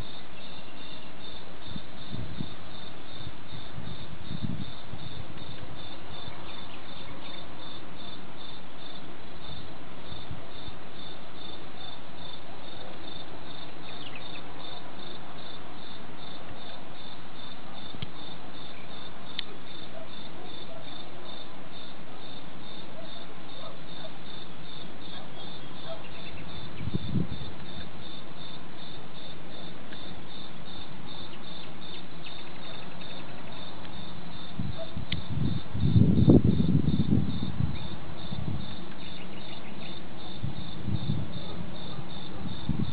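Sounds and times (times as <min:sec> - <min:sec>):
constant hiss: 0:00.0 - 0:42.9
crickets chirping: 0:00.0 - 0:42.9
distant thunder rumble: 0:34.3 - 0:38.8.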